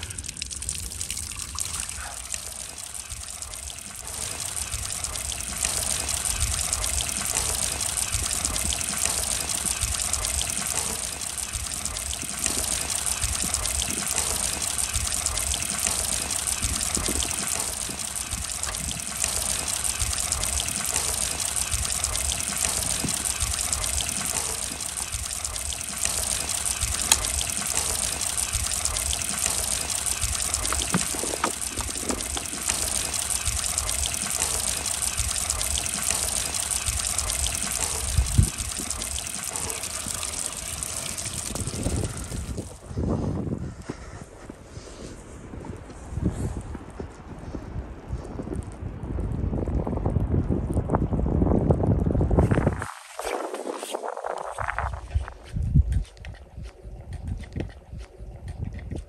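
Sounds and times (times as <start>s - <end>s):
running water rushing and gurgling: 0.0s - 43.2s, 46.1s - 55.8s
fluttering low rumble: 0.0s - 43.8s.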